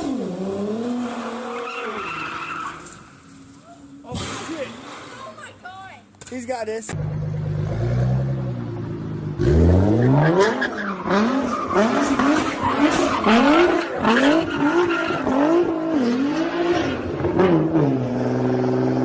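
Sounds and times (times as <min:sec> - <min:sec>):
tyres skidding: 0:00.0 - 0:18.5
car engine revving: 0:06.9 - 0:19.0.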